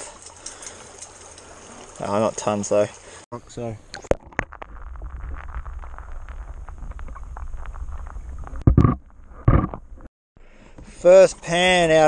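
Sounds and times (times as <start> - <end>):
muffled underwater water rumble: 3.9 - 10.1
gravel and stones clicking: 4.0 - 9.2.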